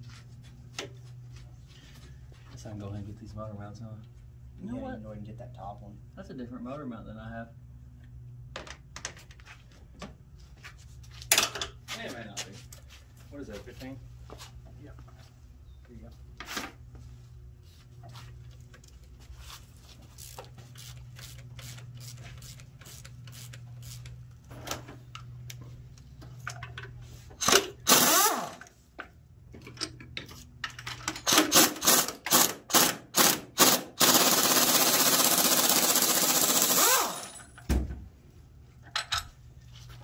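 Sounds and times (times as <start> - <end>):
air tool spinning bolt: 20.2 - 24.1, 27.4 - 28.7, 31.2 - 37.4.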